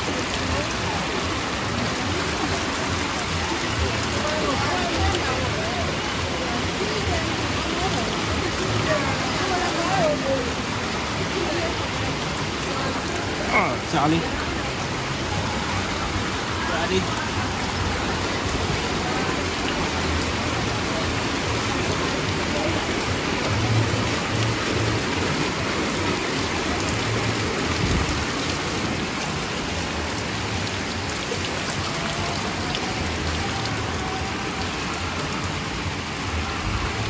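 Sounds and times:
heavy rain on water: 0:00.0 - 0:37.0.

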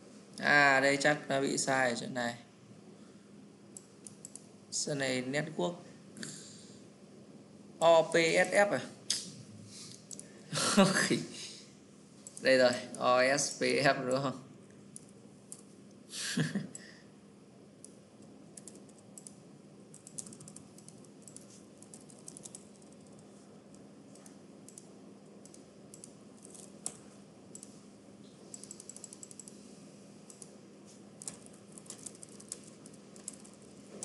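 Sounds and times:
computer keyboard typing: 0:03.8 - 0:04.5, 0:17.8 - 0:27.8, 0:28.4 - 0:29.6, 0:30.2 - 0:30.6, 0:31.2 - 0:34.0.

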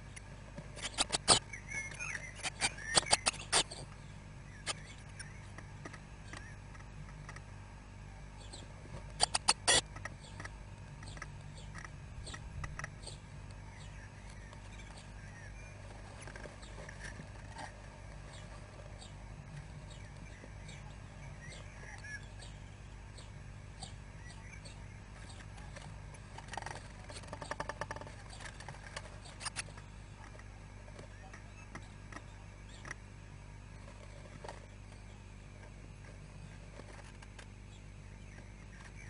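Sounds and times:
taps and scratches on wood: 0:25.2 - 0:33.0.

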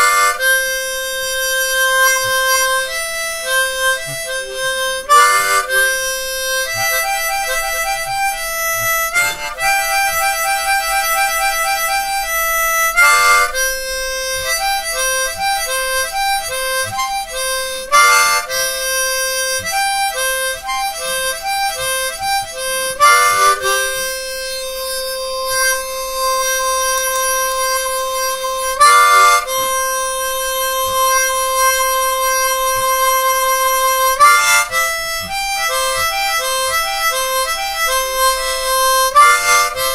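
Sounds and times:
harmonica playing: 0:00.0 - 0:39.9.

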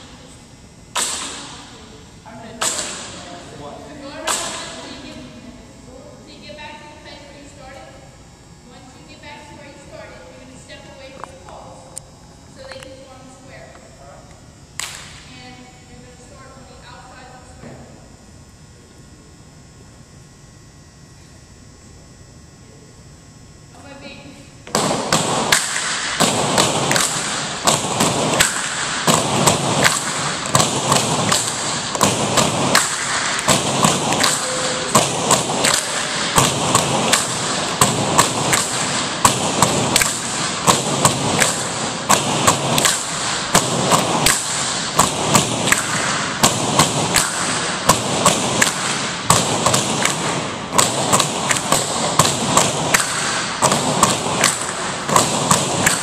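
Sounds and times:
dancers' feet stepping: 0:24.8 - 0:56.0
bamboo poles knocking rhythmically: 0:25.5 - 0:56.0.

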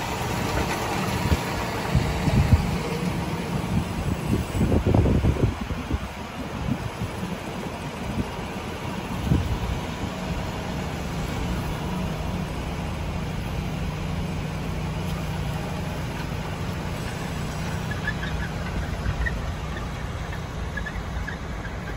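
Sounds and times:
tractor diesel engine humming: 0:00.0 - 0:21.9.

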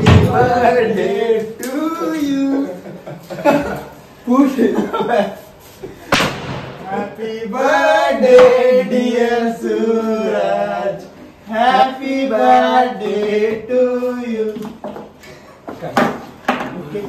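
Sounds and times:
man singing: 0:00.0 - 0:02.9.

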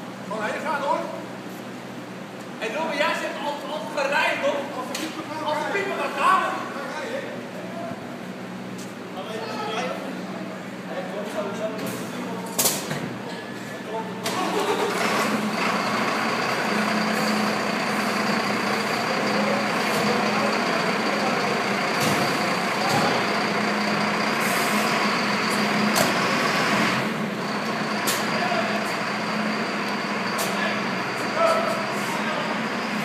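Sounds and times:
diesel truck engine running: 0:14.2 - 0:33.0
air brake hisses: 0:24.3 - 0:25.7.

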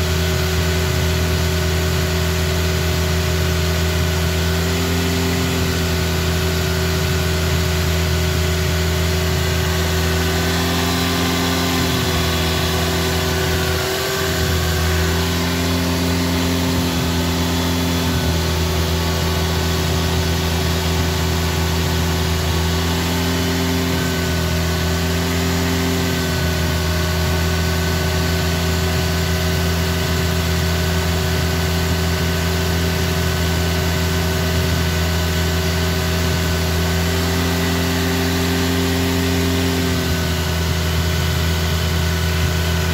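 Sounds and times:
car engine running: 0:00.0 - 0:42.9.

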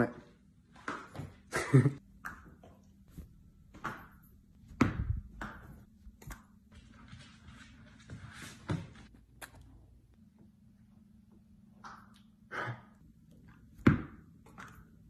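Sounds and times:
tennis balls bouncing: 0:03.7 - 0:06.5, 0:13.8 - 0:14.9.

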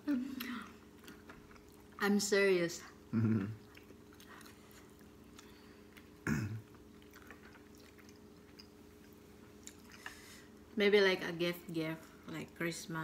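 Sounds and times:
steady low hum: 0:00.0 - 0:13.0
people chewing and clicks: 0:00.3 - 0:02.0, 0:03.2 - 0:10.2.

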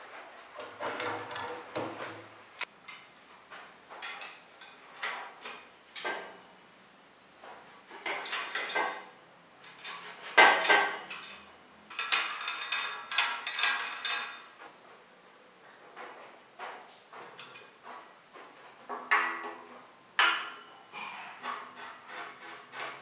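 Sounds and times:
metallic clinking and scraping: 0:09.6 - 0:14.7.

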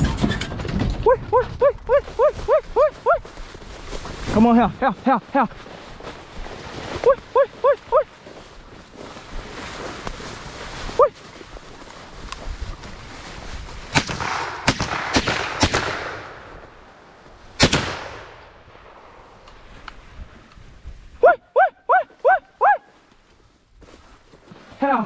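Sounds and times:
dog barking: 0:01.0 - 0:03.2, 0:07.0 - 0:08.1, 0:11.0 - 0:11.2, 0:21.2 - 0:22.9
shotgun shots: 0:13.9 - 0:16.5, 0:17.6 - 0:19.0
sharp gunshot reports: 0:14.0 - 0:16.4.

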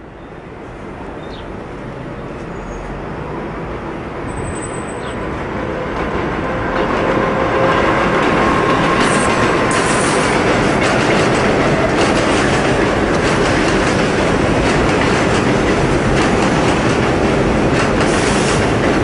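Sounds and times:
train wheel and track noise: 0:00.0 - 0:19.0.

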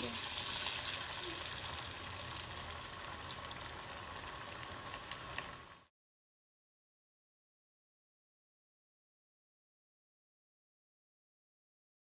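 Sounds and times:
small oil crackles: 0:00.0 - 0:05.8
food sizzling in hot oil: 0:00.0 - 0:05.9.

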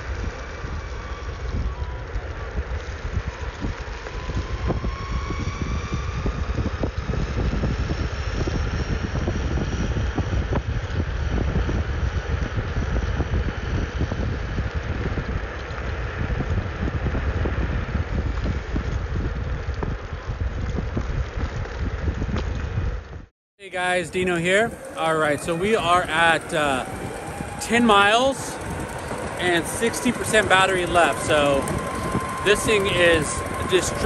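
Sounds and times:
wheels rolling on asphalt: 0:00.0 - 0:23.2, 0:23.9 - 0:34.0
wind buffeting microphone: 0:00.0 - 0:34.0
faint electric motor whine: 0:23.7 - 0:34.0.

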